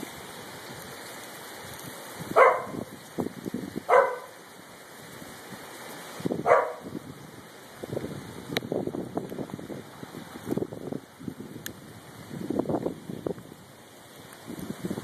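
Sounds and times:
rain and hail on pavement: 0.0 - 15.0
dog barking: 2.4 - 2.9, 3.9 - 4.4, 6.4 - 6.9.

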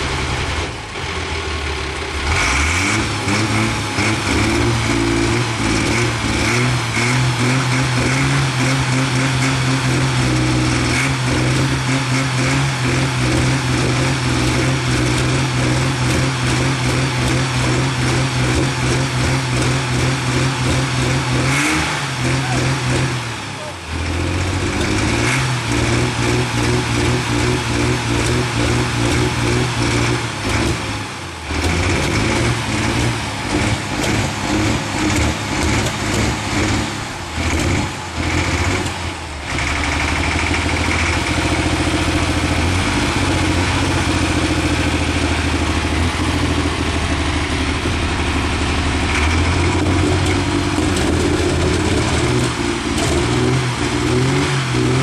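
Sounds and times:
diesel tractor engine running: 0.0 - 55.0.

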